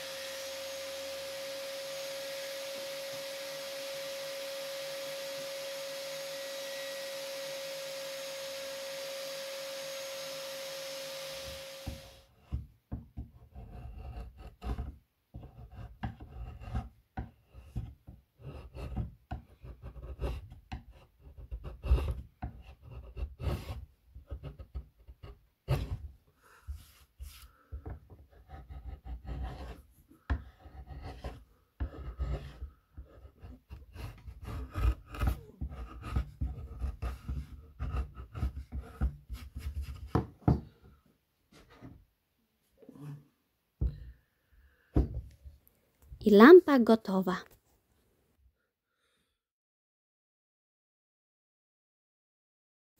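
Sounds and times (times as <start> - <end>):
table saw cutting wood: 0.0 - 12.3
chisel scraping wood: 13.2 - 26.1, 26.7 - 40.6.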